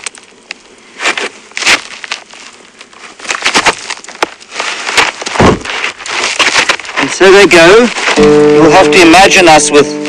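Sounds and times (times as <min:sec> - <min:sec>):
campfire crackling: 0:00.0 - 0:10.0
feet shuffling on dry ground: 0:00.8 - 0:09.8
low thump: 0:05.4 - 0:05.7.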